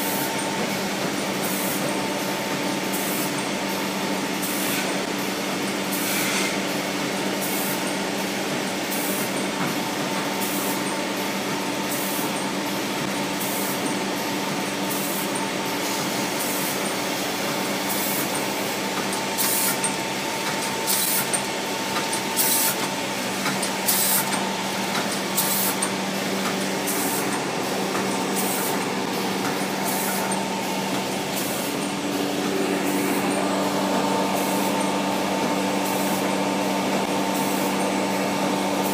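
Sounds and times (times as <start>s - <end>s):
short hisses of packing machine: 5.9s - 6.6s, 19.4s - 19.8s, 22.4s - 22.8s, 23.9s - 24.3s
packing machine motor hum: 6.6s - 38.9s.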